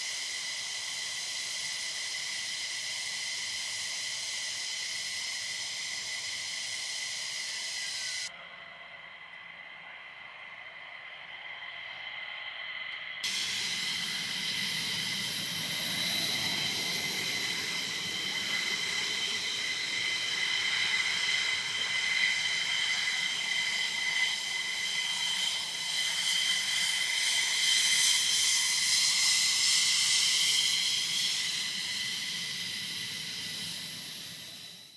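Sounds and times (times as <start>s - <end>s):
rushing hiss: 0.0s - 8.3s, 13.2s - 34.9s
jet engines whining: 12.9s - 34.9s.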